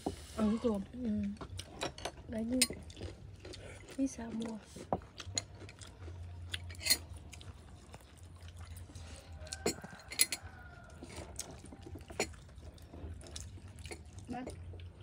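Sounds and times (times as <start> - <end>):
utensils clinking on plates: 6.6 - 7.1, 9.5 - 12.5.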